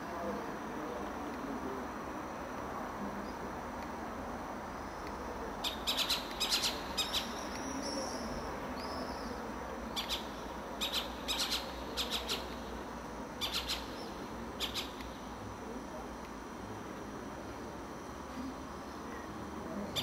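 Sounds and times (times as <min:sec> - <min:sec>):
background noise: 0:00.0 - 0:20.0
owl calling: 0:05.6 - 0:12.6, 0:13.4 - 0:15.0.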